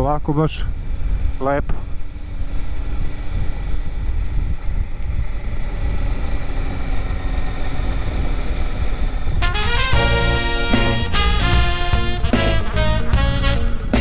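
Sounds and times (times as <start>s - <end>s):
wind rush over microphone: 0.0s - 11.0s
motorcycle engine running: 0.0s - 14.0s.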